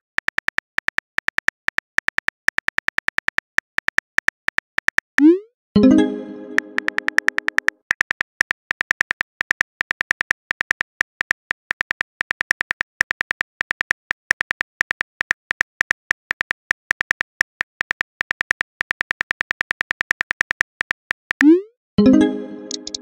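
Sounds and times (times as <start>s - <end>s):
phone keyboard typing clicks: 6.0s - 21.6s, 22.5s - 23.0s.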